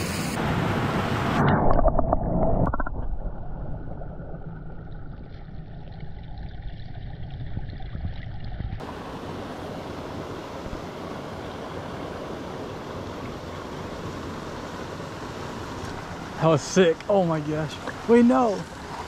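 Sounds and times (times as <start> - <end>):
stream water: 0.0 - 19.0
underwater water rush: 0.0 - 19.0
underwater splashing and bubbling: 1.1 - 9.0.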